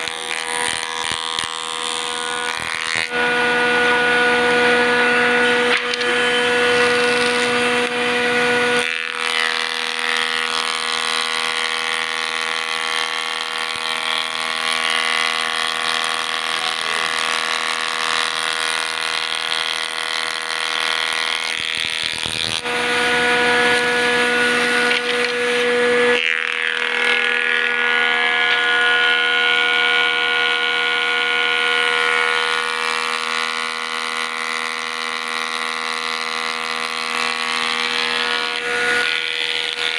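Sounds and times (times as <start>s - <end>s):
woodworking machine whining: 0.0s - 39.9s.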